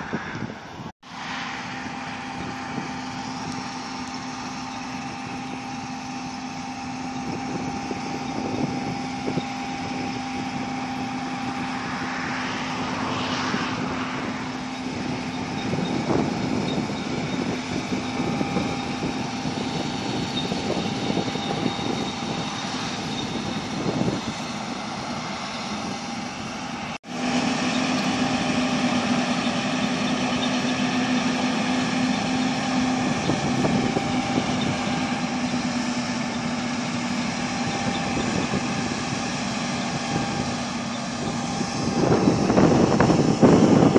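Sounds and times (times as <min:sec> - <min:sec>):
combine harvester engine drone: 0:00.0 - 0:43.9.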